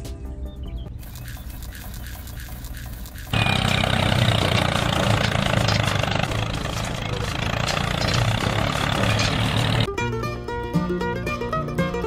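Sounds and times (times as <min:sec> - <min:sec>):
tractor engine running: 0:00.9 - 0:09.9.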